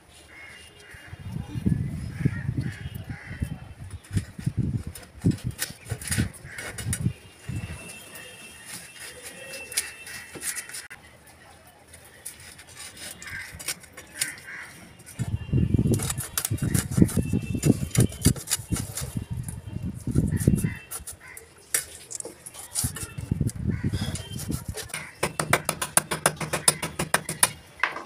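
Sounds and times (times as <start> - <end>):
fish scraping against blade: 15.8 - 19.2.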